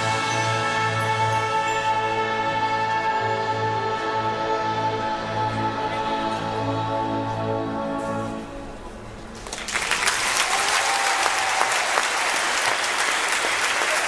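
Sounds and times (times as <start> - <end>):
audience applause: 9.4 - 14.0.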